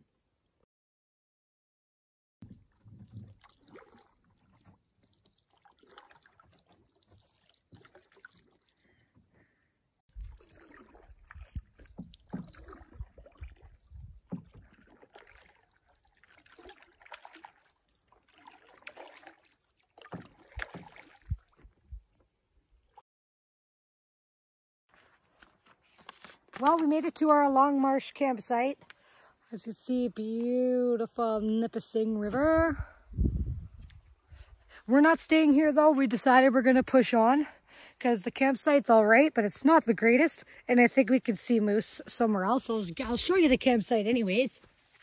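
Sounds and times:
paddles swishing through water: 2.4 - 23.0, 31.2 - 45.0.

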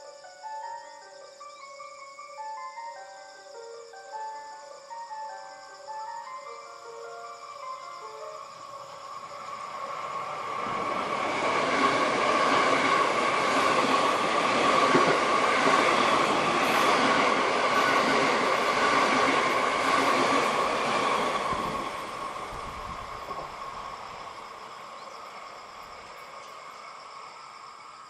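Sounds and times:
train wheels rumbling on rails: 9.4 - 26.8.

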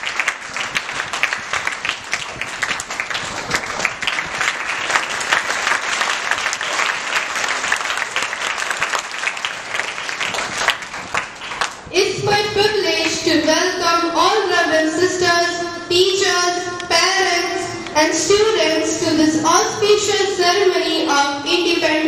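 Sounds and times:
crowd applauding: 0.0 - 11.9.

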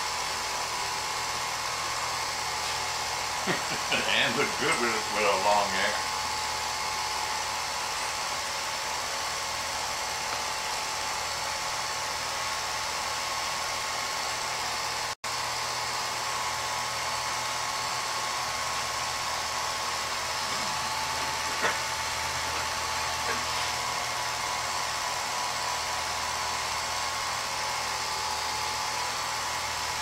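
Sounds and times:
film projector whirring: 0.0 - 30.0.

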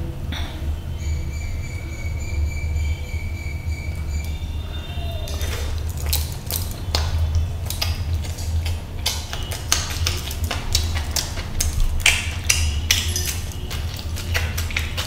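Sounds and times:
steady low hum: 0.0 - 15.0
wet chewing and lip smacks: 5.0 - 15.0.

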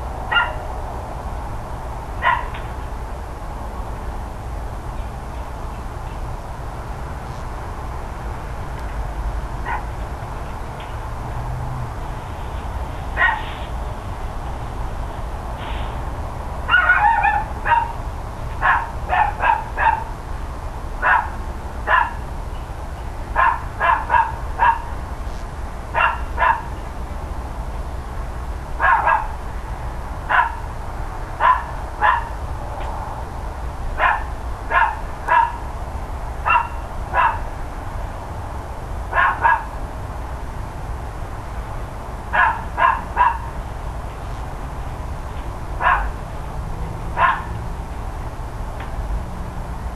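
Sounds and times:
dog barking: 0.3 - 0.6, 2.2 - 2.5, 9.6 - 9.9, 13.2 - 13.6, 16.7 - 18.0, 18.6 - 20.1, 21.0 - 22.2, 23.4 - 24.9, 26.0 - 26.7, 28.8 - 29.4, 30.3 - 30.6, 31.4 - 32.4, 34.0 - 35.6, 36.4 - 37.5, 39.1 - 39.7, 42.3 - 43.5, 45.8 - 46.2, 47.2 - 47.5.

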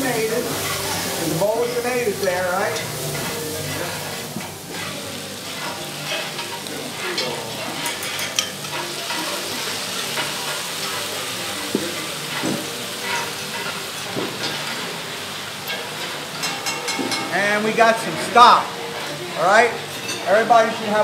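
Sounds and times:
food sizzling in a skillet: 0.0 - 21.0
spoon scraping and stirring: 2.7 - 9.4.

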